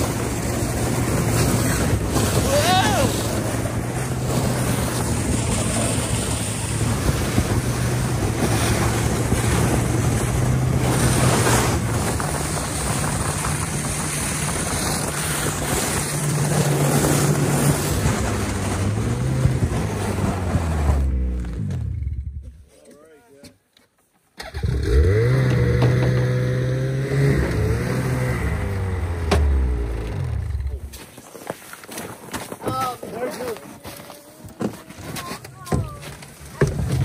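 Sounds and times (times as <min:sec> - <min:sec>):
wind rush on microphone: 0:00.0 - 0:21.1
snowmobile engine running: 0:00.0 - 0:22.4, 0:24.6 - 0:31.0, 0:32.8 - 0:37.0.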